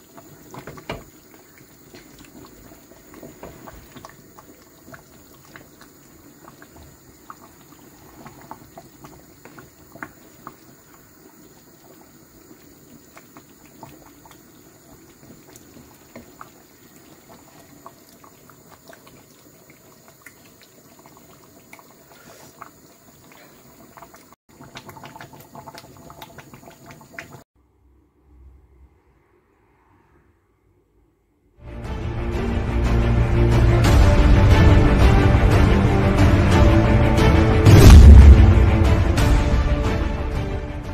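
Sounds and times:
soup boiling and bubbling: 0:00.0 - 0:27.5.

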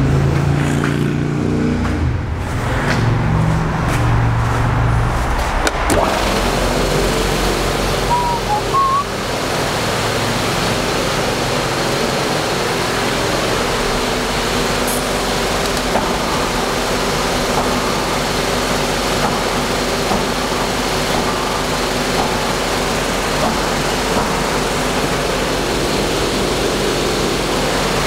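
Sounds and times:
air compressor humming and hissing: 0:03.5 - 0:28.0.

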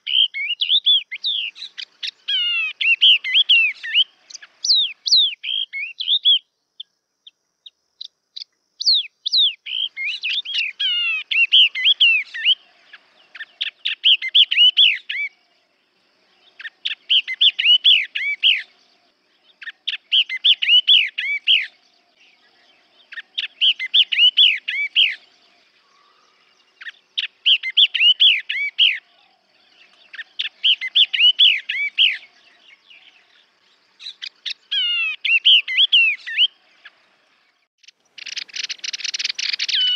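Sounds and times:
bird warbling song: 0:00.0 - 0:39.9.

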